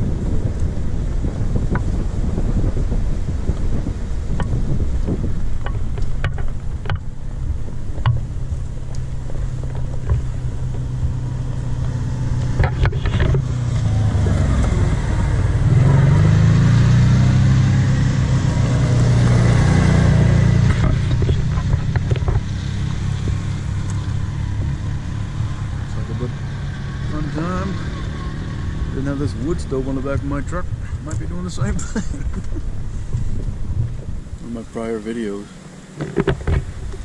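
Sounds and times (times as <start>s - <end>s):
pickup truck engine humming: 0.0s - 34.4s
utility vehicle engine passing: 9.0s - 31.8s.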